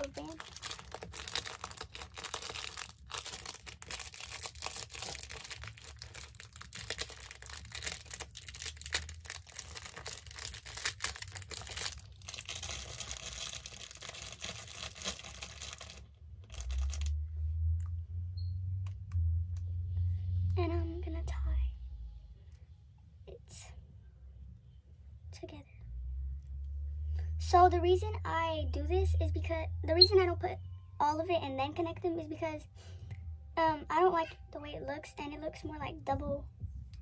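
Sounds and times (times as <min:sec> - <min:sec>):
low hum: 0:16.1 - 0:37.0.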